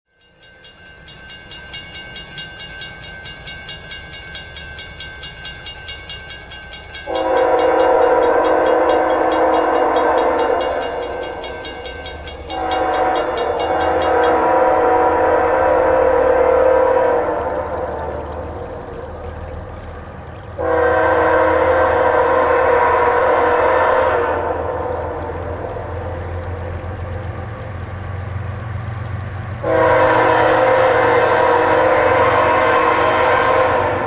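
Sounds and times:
crossing warning bell dinging: 0.1 - 16.2
locomotive air horn blasts: 7.1 - 11.2, 12.4 - 18.2, 20.6 - 26.0, 29.6 - 34.0.

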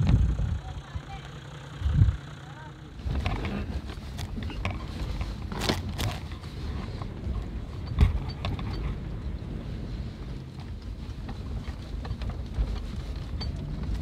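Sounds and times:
vehicle rumbling over rough ground: 0.0 - 14.0
knocks and rattles: 3.0 - 9.4, 10.5 - 14.0.

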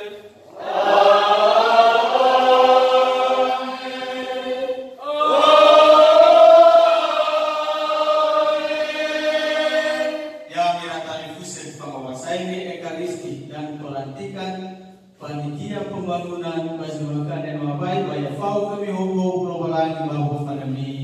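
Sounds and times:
voices singing slow chant: 0.0 - 10.5.

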